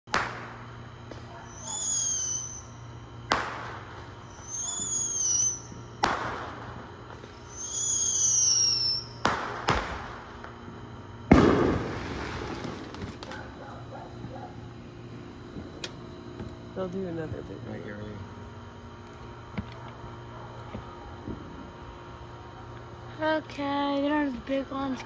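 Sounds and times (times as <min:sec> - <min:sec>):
firework bangs: 0:00.1 - 0:02.6, 0:03.2 - 0:14.4
firework whistle: 0:00.1 - 0:10.5, 0:11.3 - 0:13.0.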